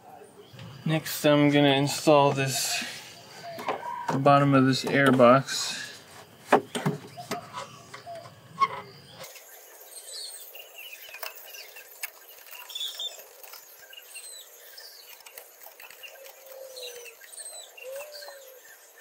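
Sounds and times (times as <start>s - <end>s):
small birds chirping: 0.0s - 19.0s
hard plastic knocks and clicks: 3.6s - 5.4s, 6.5s - 8.8s.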